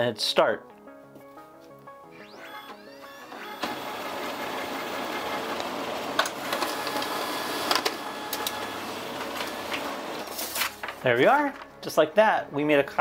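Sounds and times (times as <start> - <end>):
printer mechanical whir: 2.2 - 10.4
printer sharp clicks: 3.3 - 9.9.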